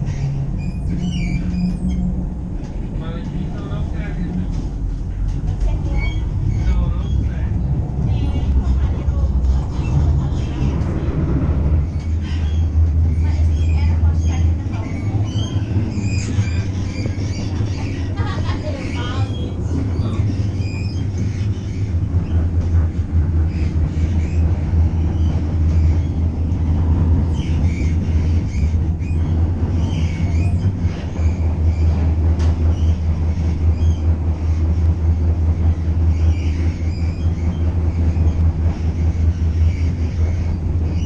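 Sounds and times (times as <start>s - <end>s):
faint high squeaks: 0.0s - 2.2s
train wheels rumbling: 0.0s - 41.0s.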